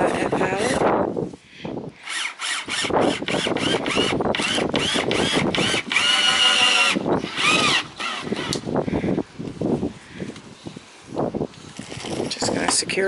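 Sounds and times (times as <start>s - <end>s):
power drill driving screw into wood: 2.0s - 8.7s.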